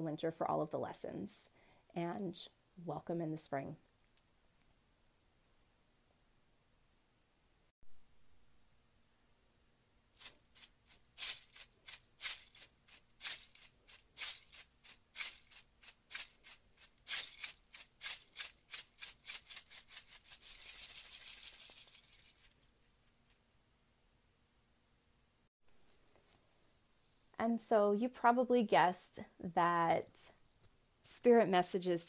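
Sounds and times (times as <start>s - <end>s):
cards shuffled by hand: 10.2s - 23.4s.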